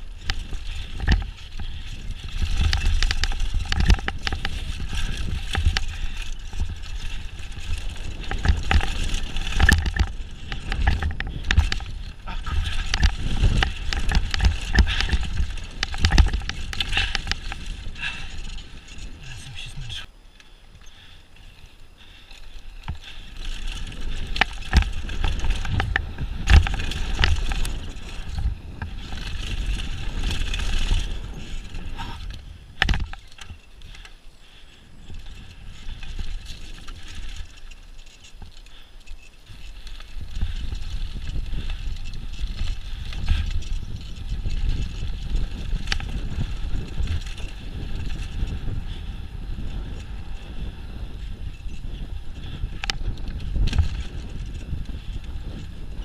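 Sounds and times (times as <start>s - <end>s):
wind on microphone: 0.0s - 38.8s, 39.4s - 56.0s
bike rattling: 0.0s - 56.0s
tyres rumbling over gravel: 0.2s - 20.0s, 22.0s - 34.0s.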